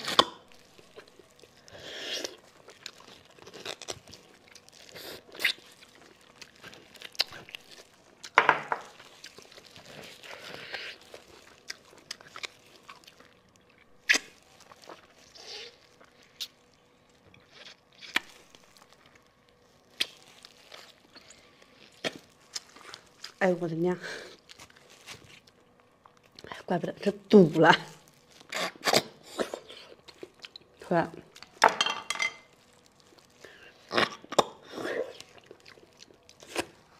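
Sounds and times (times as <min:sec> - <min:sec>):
chewing: 0:00.1 - 0:23.4, 0:32.5 - 0:36.9
sharp crunches and clicks: 0:02.2 - 0:23.4.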